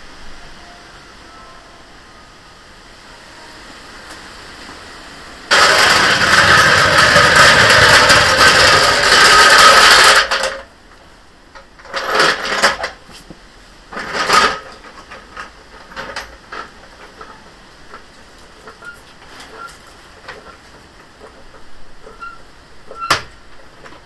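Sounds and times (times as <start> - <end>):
trolley jack rattling on stone: 5.5 - 10.7, 11.5 - 13.0, 13.9 - 24.0
jack clicks and knocks: 5.5 - 24.0.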